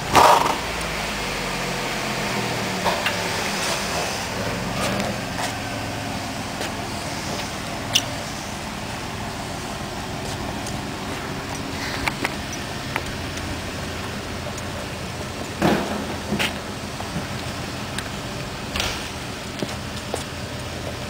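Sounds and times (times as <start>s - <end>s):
minivan engine idling: 0.0s - 21.0s.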